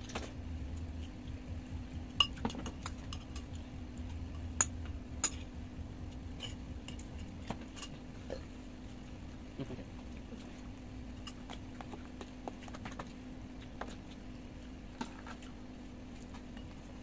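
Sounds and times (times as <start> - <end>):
low steady hum: 0.0 - 17.0
cutlery clinking on dishes: 6.4 - 8.0.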